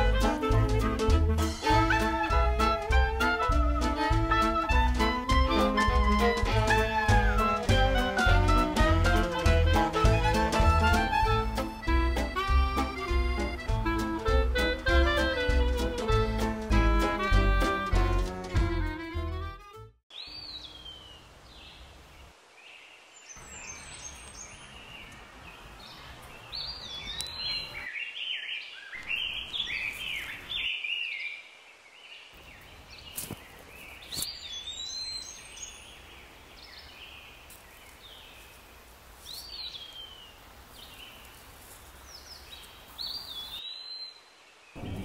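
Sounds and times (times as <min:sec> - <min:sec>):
outdoor background hiss: 0:20.1 - 0:45.0
small birds chirping: 0:20.1 - 0:45.0.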